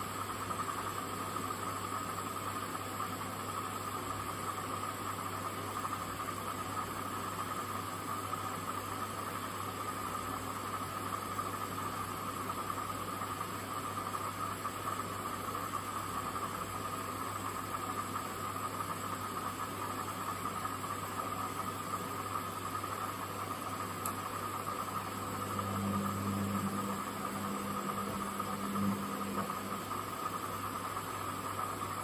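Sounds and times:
low hum: 0:24.0 - 0:30.3.

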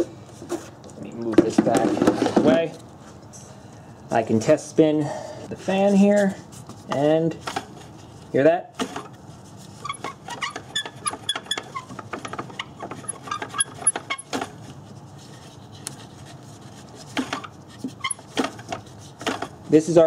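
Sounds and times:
fan motor rattling and clicking: 0:09.8 - 0:14.8, 0:17.1 - 0:20.0.

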